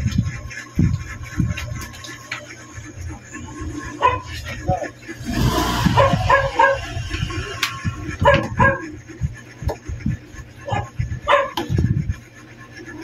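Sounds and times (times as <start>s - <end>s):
dog barking: 4.0s - 4.4s, 5.7s - 7.2s, 8.2s - 8.9s, 10.6s - 11.6s.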